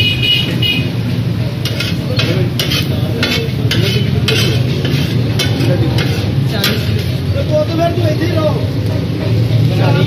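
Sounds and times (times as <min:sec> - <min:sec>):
food sizzling: 0:01.0 - 0:10.0
metal spatulas scraping on griddle: 0:01.5 - 0:07.4.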